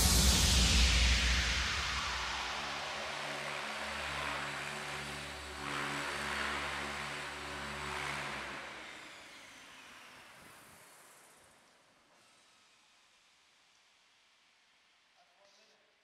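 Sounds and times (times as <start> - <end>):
helicopter rotor whoosh: 0.0 - 11.4.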